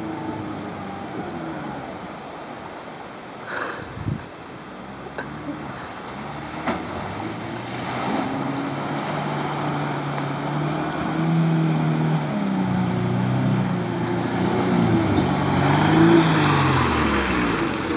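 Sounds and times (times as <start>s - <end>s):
water and mud splashing: 0.0s - 17.9s
car engine revving: 5.2s - 17.9s.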